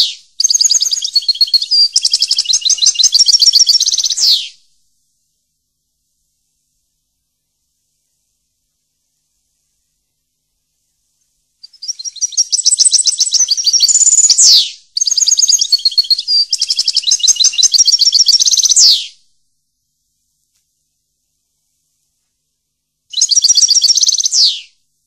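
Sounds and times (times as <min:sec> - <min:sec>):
songbird trilling and chirping: 0:00.0 - 0:04.6, 0:11.6 - 0:19.2, 0:23.1 - 0:24.7.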